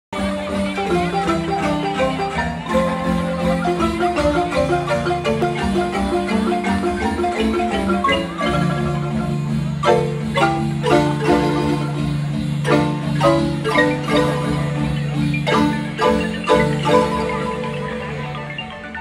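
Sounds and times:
marimbas playing lively tune: 0.1 - 19.0.

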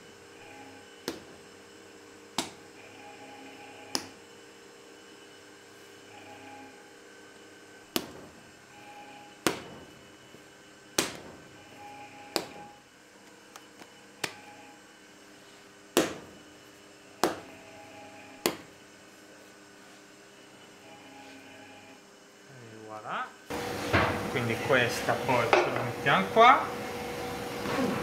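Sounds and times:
dough slapped on worktop: 1.0 - 1.3, 2.3 - 2.6, 3.9 - 4.2, 7.9 - 8.2, 9.4 - 9.7, 11.0 - 11.4, 12.4 - 12.6, 16.0 - 16.4, 17.2 - 17.4, 18.4 - 18.7.

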